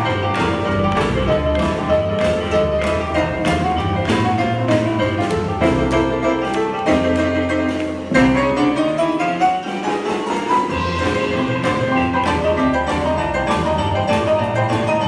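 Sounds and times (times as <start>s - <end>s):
boogie-woogie band playing: 0.0s - 15.0s
drums: 0.0s - 15.0s
piano: 0.0s - 15.0s.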